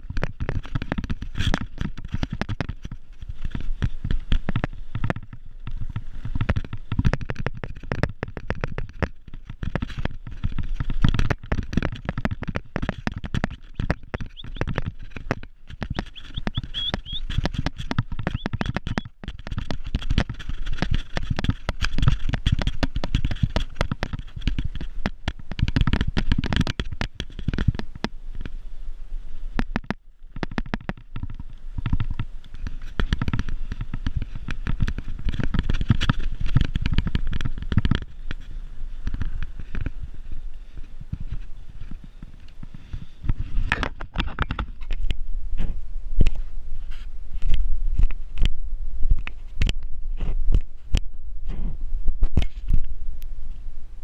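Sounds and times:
wind buffeting microphone: 0:00.0 - 0:28.5
bike rattling and knocking: 0:00.0 - 0:28.6, 0:29.5 - 0:45.8.

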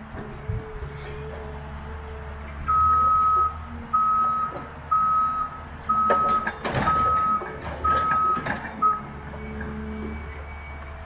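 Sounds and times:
diesel engine hum: 0:00.0 - 0:11.0
reversing alarm beeping: 0:02.7 - 0:11.0.

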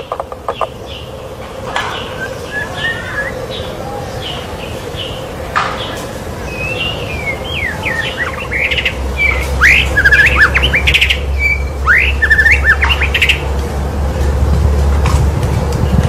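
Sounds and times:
songbird singing whistles and trills: 0:01.9 - 0:04.4, 0:05.8 - 0:13.4
low steady rumble: 0:06.2 - 0:16.0.

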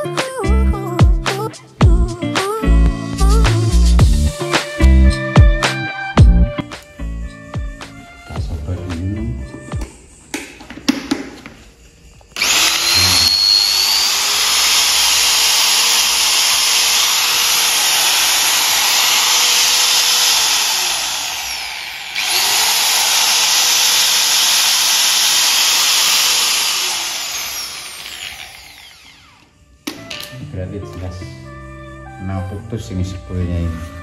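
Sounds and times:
angle grinder motor whining: 0:12.4 - 0:30.4.

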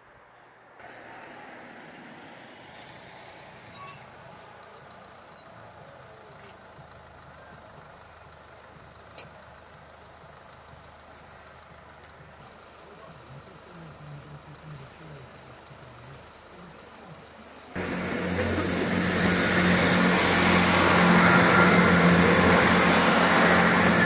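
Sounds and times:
car engine idling: 0:00.7 - 0:24.0
high-pitched squeaks: 0:03.7 - 0:04.2, 0:05.3 - 0:05.5.

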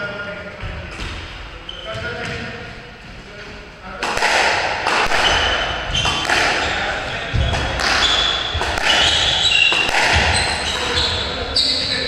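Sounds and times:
shoes squeaking on wooden floor: 0:00.6 - 0:03.6, 0:05.1 - 0:06.5, 0:07.1 - 0:12.0
squash ball cracking off walls: 0:04.0 - 0:06.7, 0:07.4 - 0:11.0.

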